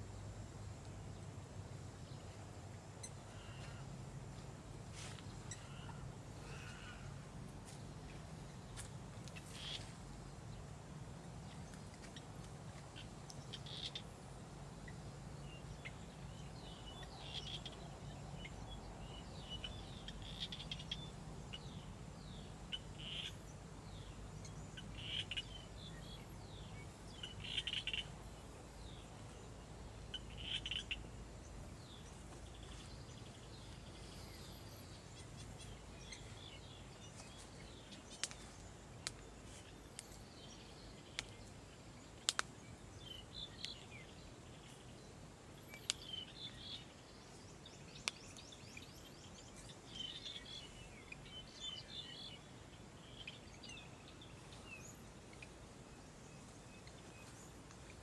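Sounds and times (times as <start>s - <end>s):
birds chirping: 1.8s - 10.7s, 11.3s - 58.0s
sharp clicks: 42.2s - 42.5s.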